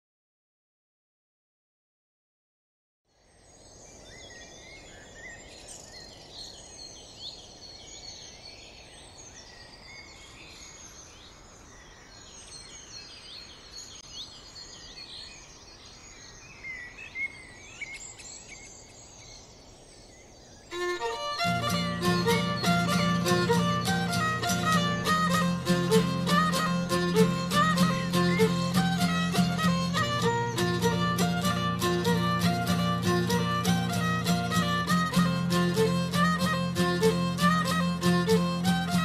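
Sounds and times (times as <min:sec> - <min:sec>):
low background hiss: 0:03.1 - 0:39.0
birds chirping and calling: 0:20.7 - 0:39.0
violin music: 0:20.7 - 0:39.0.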